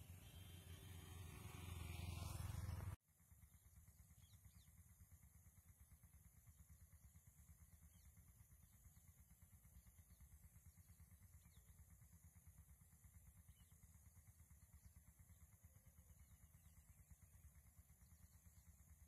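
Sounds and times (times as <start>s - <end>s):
faint fluttering rumble: 0.0s - 19.0s.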